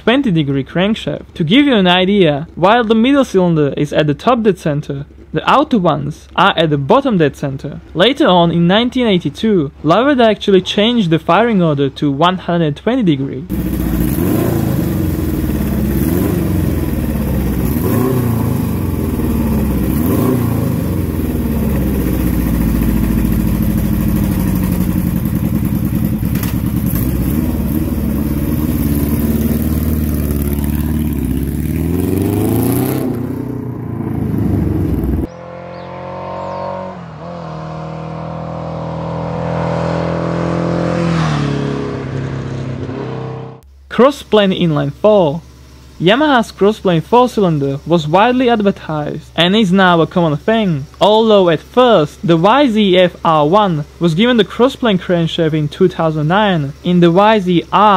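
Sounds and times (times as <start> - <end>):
motorcycle accelerating: 13.5 - 43.7
motorcycle engine revving: 13.5 - 43.7.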